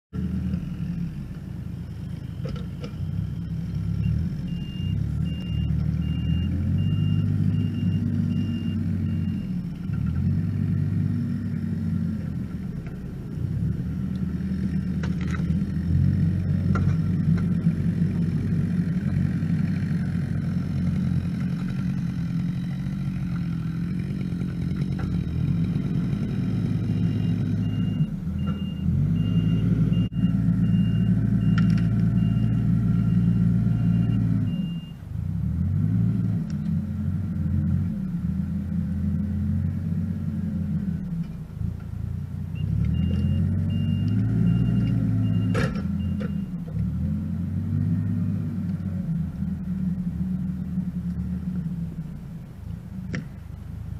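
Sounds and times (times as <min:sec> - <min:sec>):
diesel engine revving: 0:00.1 - 0:53.9
reversing alarm beeping: 0:01.8 - 0:09.8, 0:26.4 - 0:35.0, 0:42.6 - 0:46.6.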